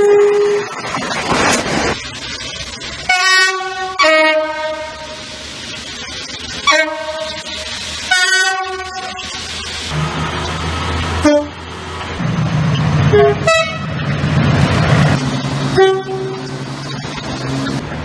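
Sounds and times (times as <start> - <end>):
train horn blasts: 0.0 - 0.6, 3.1 - 5.0, 8.1 - 9.2, 11.2 - 11.6, 13.1 - 13.9, 15.8 - 16.5
diesel train engine running: 0.0 - 18.0.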